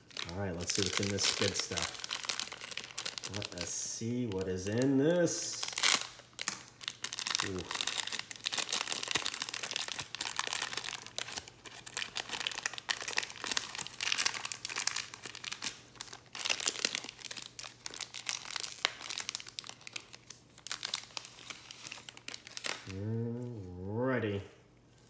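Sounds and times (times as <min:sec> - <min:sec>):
wrapper tearing and crinkling: 0:00.0 - 0:22.9.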